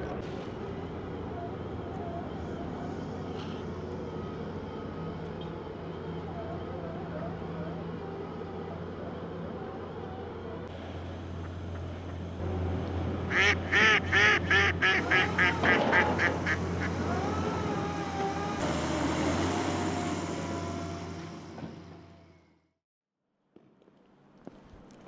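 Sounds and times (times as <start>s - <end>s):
duck quacking: 13.3s - 16.9s.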